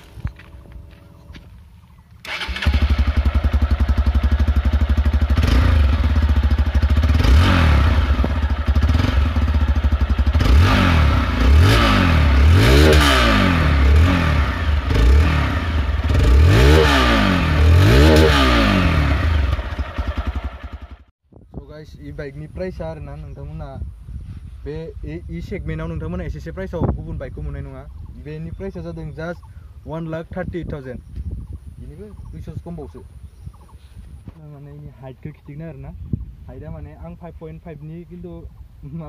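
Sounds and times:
motorcycle engine idling and revving: 0.0s - 21.2s.

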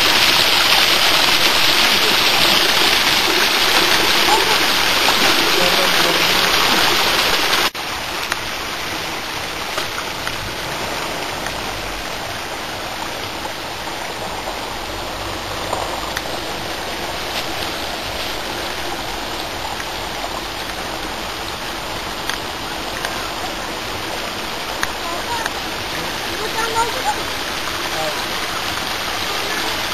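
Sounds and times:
running water rushing: 0.0s - 29.9s.

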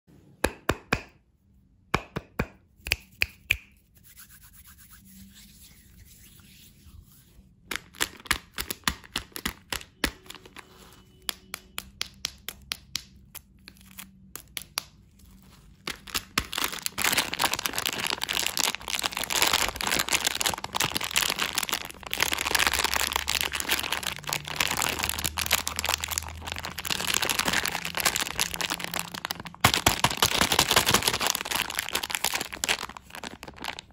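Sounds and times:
clicks and taps of wrapped candy: 0.4s - 1.2s, 1.9s - 3.7s, 7.7s - 33.9s
plastic bag crinkling: 15.2s - 33.9s.

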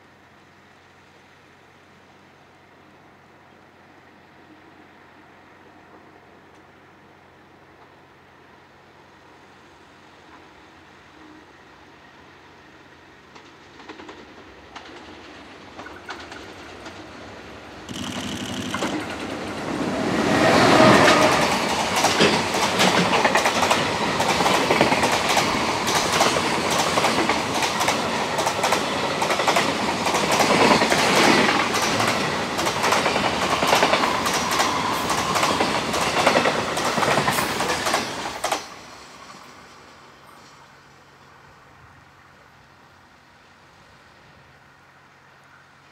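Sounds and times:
electric locomotive passing: 0.0s - 45.9s
wagon wheels clattering over rail joints: 17.9s - 19.6s, 21.5s - 32.2s.

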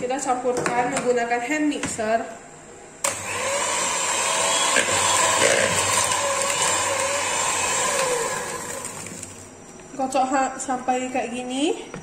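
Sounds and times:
electric hand mixer running: 3.1s - 9.4s.

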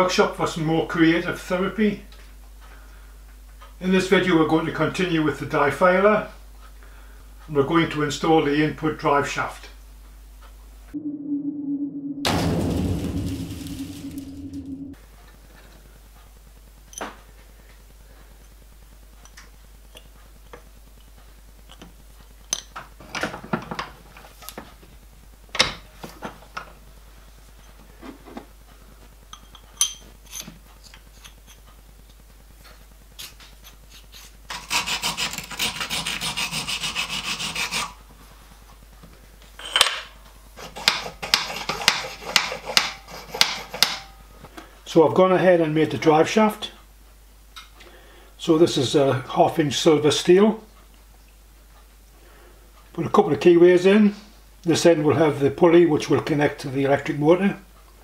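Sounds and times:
rasping metal scrape: 33.9s - 38.0s, 40.6s - 44.1s.

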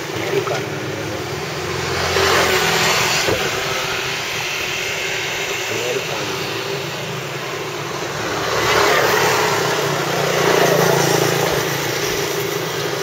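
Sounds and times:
motor scooters passing: 0.0s - 13.0s.

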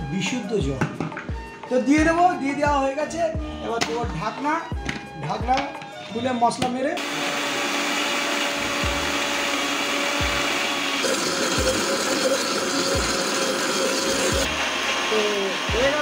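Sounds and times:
mixer grinder running: 7.0s - 16.0s.

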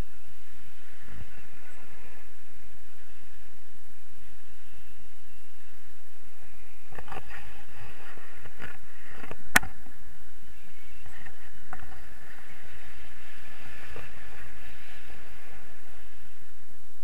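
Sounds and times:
wind rushing over microphone: 0.0s - 17.0s.

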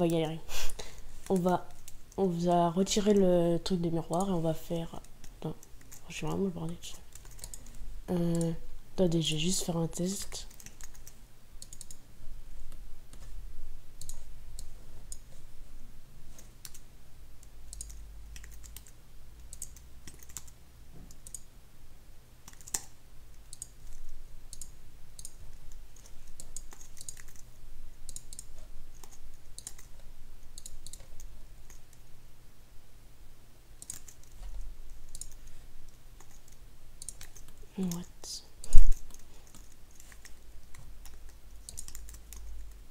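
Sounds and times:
low steady hum: 0.0s - 42.9s
keyboard and mouse clicking: 5.0s - 8.6s, 10.2s - 12.0s, 14.0s - 15.4s, 16.3s - 21.5s, 22.4s - 32.0s, 33.8s - 42.8s.

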